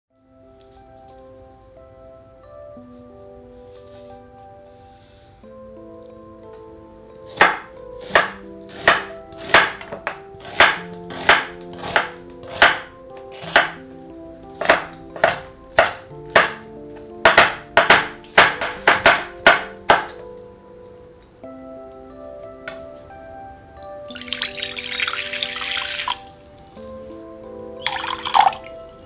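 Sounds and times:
soft background music: 0.1s - 29.0s
knife chopping on wooden board: 7.3s - 13.8s, 14.6s - 20.2s.

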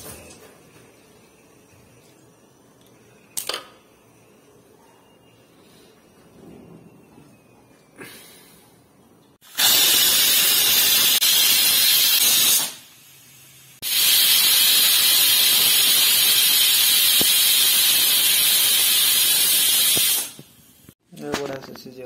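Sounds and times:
pressure cooker whistle: 9.4s - 12.8s, 13.8s - 20.4s.

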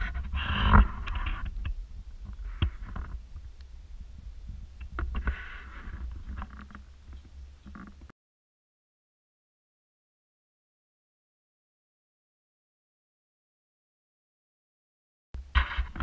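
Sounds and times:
rubbing and rustling against camera: 0.0s - 8.1s, 15.4s - 16.0s.

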